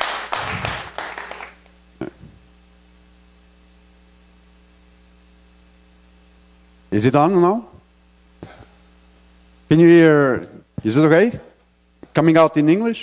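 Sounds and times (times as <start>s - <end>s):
audience clapping: 0.0s - 1.7s
electrical hum: 0.0s - 13.0s
short vocal sound: 2.0s - 2.4s.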